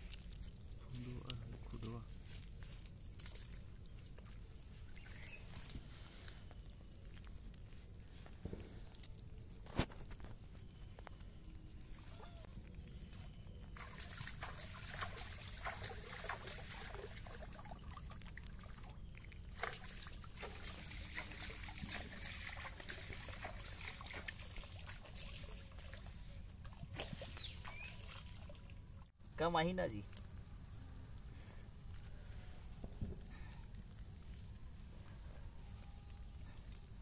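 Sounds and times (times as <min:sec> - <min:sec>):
fish flapping in a mesh net: 0:13.8 - 0:18.2, 0:19.5 - 0:26.1.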